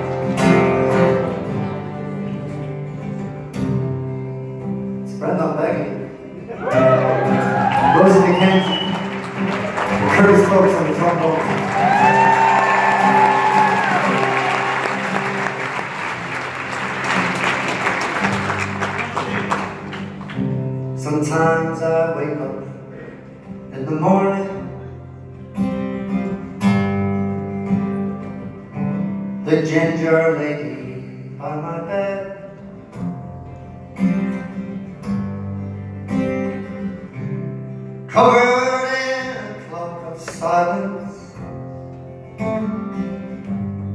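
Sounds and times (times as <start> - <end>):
acoustic guitar strumming chords: 0.0 - 43.9
audience applause: 6.6 - 20.5.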